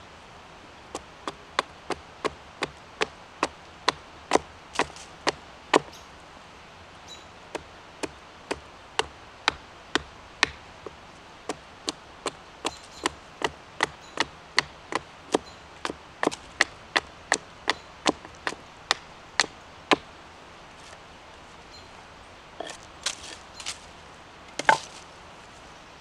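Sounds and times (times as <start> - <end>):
hatchet chopping wood: 0.9 - 6.0, 7.5 - 20.1, 22.6 - 23.8, 24.6 - 25.0.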